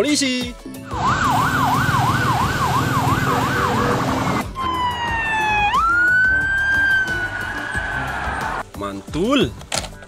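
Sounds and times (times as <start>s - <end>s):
police siren wailing: 0.9s - 8.6s
police siren yelping: 0.9s - 8.6s.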